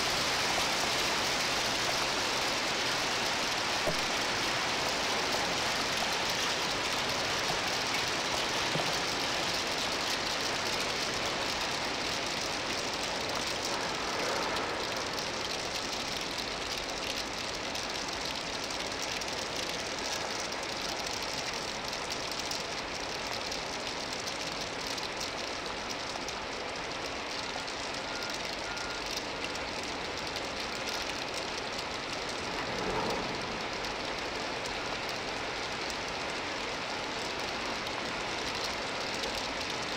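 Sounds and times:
heavy rain: 0:00.0 - 0:39.9
freight train rolling past: 0:32.4 - 0:35.0.

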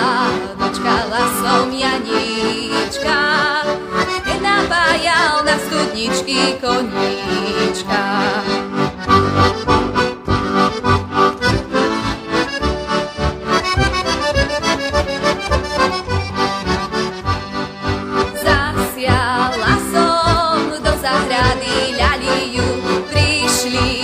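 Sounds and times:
button accordion playing folk melody: 0:00.0 - 0:24.0.

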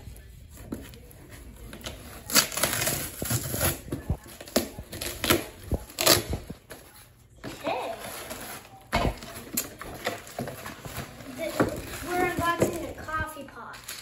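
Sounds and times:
packing tape tearing: 0:01.8 - 0:06.6.

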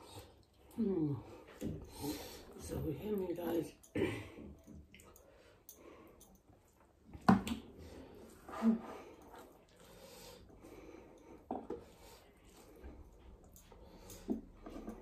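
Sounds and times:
soft chewing: 0:04.4 - 0:07.2, 0:09.0 - 0:15.0.

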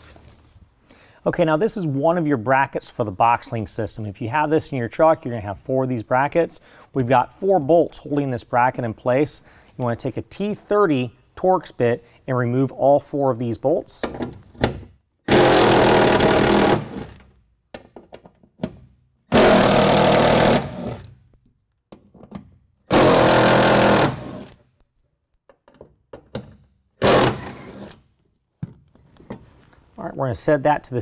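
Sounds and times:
impact driver bursts: 0:15.3 - 0:17.2, 0:19.3 - 0:21.1, 0:22.9 - 0:24.6, 0:27.0 - 0:28.0
clicks and handling knocks: 0:17.2 - 0:18.9, 0:21.3 - 0:22.6, 0:24.8 - 0:26.7.

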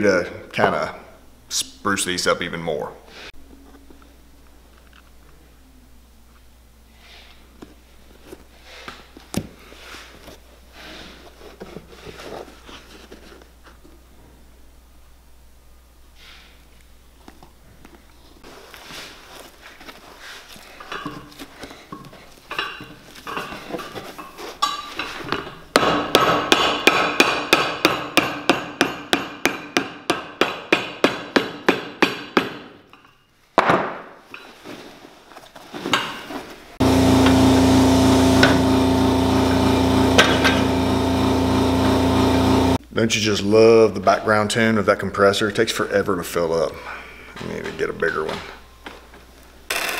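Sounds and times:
hammer striking leather sole: 0:25.8 - 0:32.6
air compressor humming: 0:36.8 - 0:42.8.

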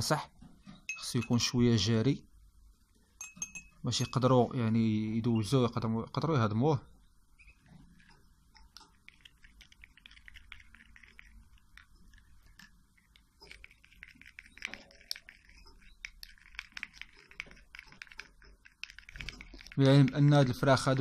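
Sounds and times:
syringe tip scraping plastic cup: 0:07.4 - 0:21.0.

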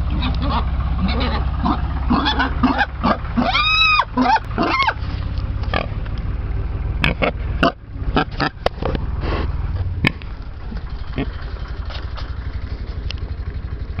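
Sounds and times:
low rumble: 0:00.0 - 0:14.0
pigs grunting: 0:01.0 - 0:05.0, 0:05.6 - 0:06.0, 0:07.0 - 0:11.8.

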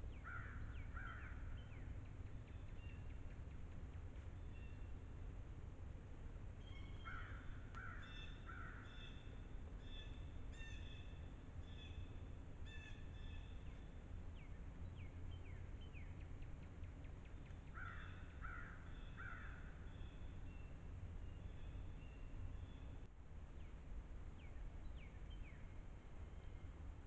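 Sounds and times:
small birds singing: 0:00.0 - 0:05.3, 0:06.4 - 0:27.0
steady low rumble: 0:00.0 - 0:27.0
crow cawing: 0:00.2 - 0:01.4, 0:07.0 - 0:09.1, 0:17.7 - 0:19.8.

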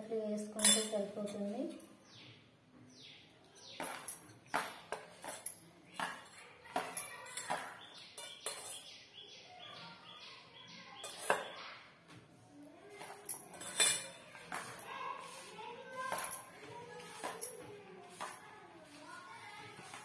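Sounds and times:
bangles clinking: 0:00.6 - 0:01.5, 0:03.5 - 0:08.9, 0:13.0 - 0:14.9, 0:16.0 - 0:16.5.

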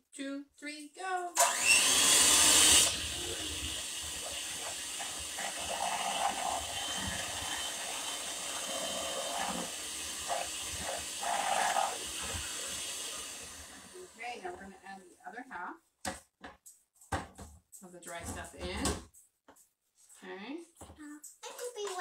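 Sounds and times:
electric hand mixer whirring: 0:01.4 - 0:14.7.

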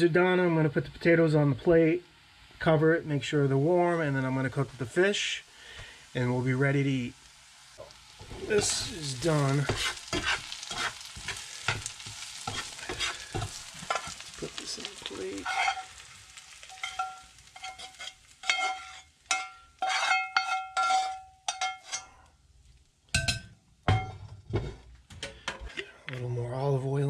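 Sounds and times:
potatoes sizzling in a skillet: 0:00.0 - 0:23.2
metal spatula scraping skillet: 0:07.8 - 0:22.3
clinks on a ceramic plate: 0:16.8 - 0:22.1, 0:23.2 - 0:24.3.

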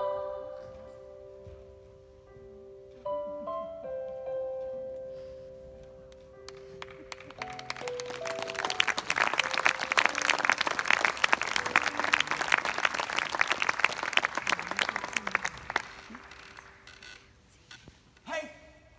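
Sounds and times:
audience applauding: 0:06.5 - 0:17.2.

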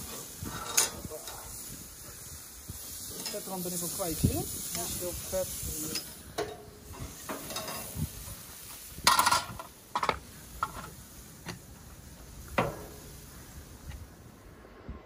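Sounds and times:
metal utensils clinking on grill: 0:00.0 - 0:01.7, 0:03.0 - 0:08.4, 0:09.0 - 0:11.0.

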